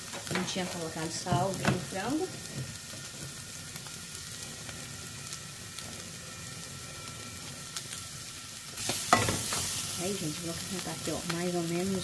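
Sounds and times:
chicken sizzling in a frying pan: 0.0 - 12.0.

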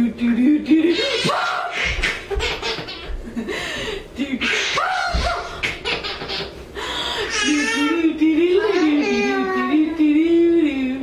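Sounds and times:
baby laughing: 0.9 - 3.2, 4.4 - 6.6, 7.2 - 9.6.

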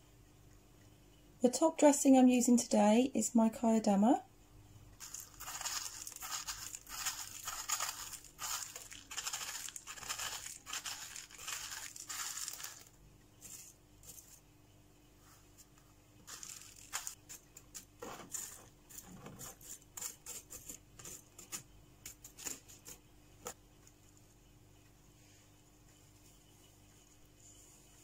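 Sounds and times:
granules pouring into a pot: 5.0 - 14.4, 16.3 - 17.2.

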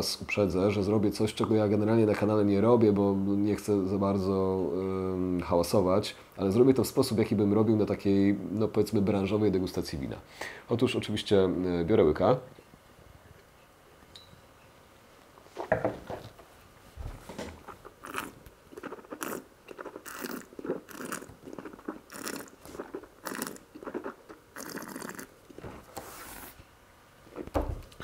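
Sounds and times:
person slurping wine: 17.6 - 26.5.

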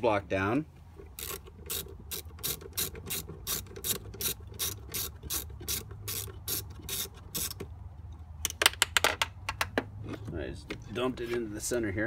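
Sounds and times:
ratchet wrench clicking: 1.1 - 7.6.

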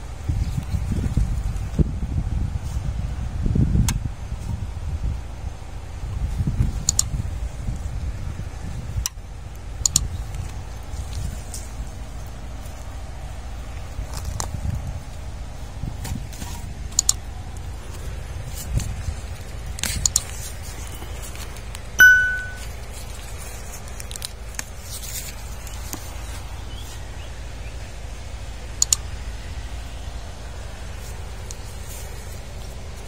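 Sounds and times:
bright bell ding: 22.0 - 22.7.

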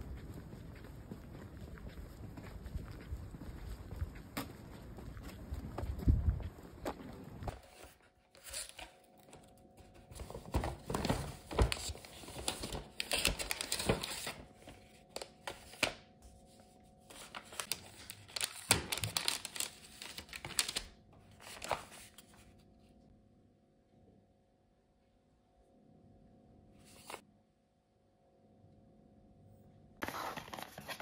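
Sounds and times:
paper rustling and crinkling: 6.7 - 22.6, 26.8 - 27.2, 30.0 - 31.0.

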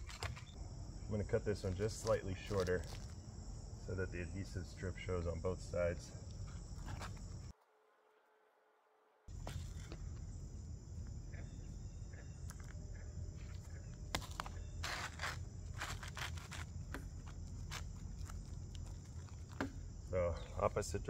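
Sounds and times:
shingle scraping: 0.0 - 0.6, 1.6 - 3.3, 6.4 - 7.5, 9.3 - 10.2, 13.3 - 20.1
high insect drone: 0.0 - 7.6, 9.3 - 21.0.

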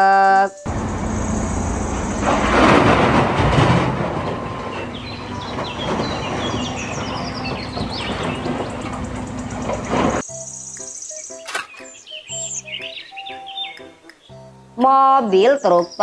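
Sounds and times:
diesel engine running: 0.7 - 10.2
earth pouring into steel truck bed: 1.1 - 8.4.

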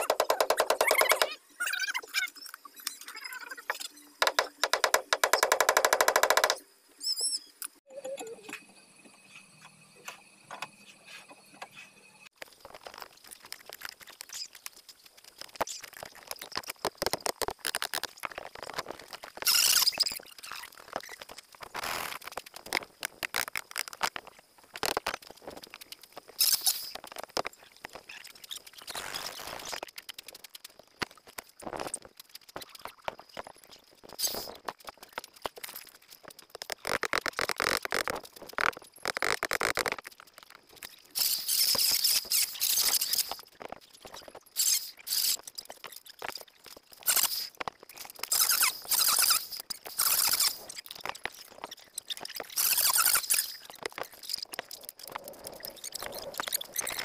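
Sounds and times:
tools knocking and scraping wood: 0.0 - 1.3, 3.7 - 6.6
faint steady high tone: 7.0 - 12.4.

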